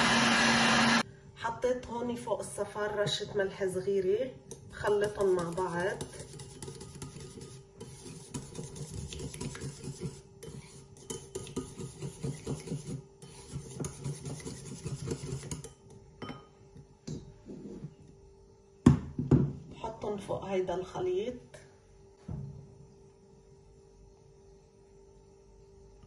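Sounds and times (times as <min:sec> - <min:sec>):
whisk clicking against bowl: 0:04.5 - 0:15.8.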